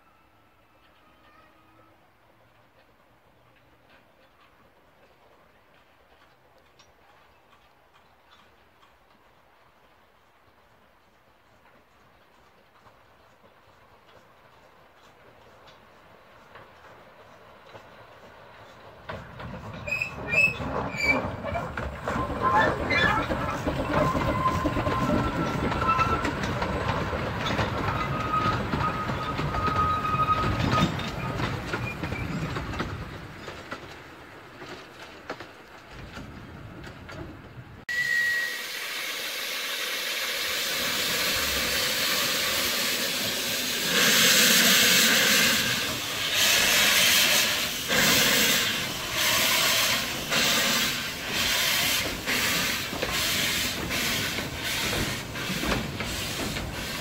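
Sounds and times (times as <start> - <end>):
steam locomotive exhaust beats: 8.8 - 34.7, 35.9 - 57.0
wheel squeal: 19.7 - 32.7, 37.9 - 39.2
steam hissing: 37.9 - 57.0.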